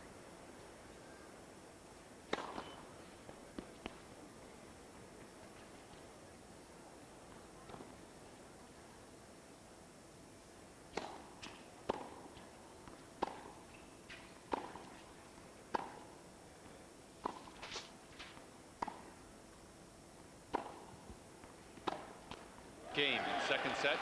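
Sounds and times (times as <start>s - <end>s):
tennis ball bouncing: 2.3s - 2.7s, 10.9s - 15.0s, 15.7s - 16.1s, 17.2s - 17.6s, 18.8s - 19.2s, 20.5s - 22.4s
tennis ball hit by racquet: 2.3s - 2.7s, 10.9s - 12.2s, 13.2s - 13.6s, 14.5s - 14.8s, 15.7s - 16.1s, 17.2s - 17.8s, 18.8s - 19.1s, 20.5s - 20.9s, 21.8s - 22.4s.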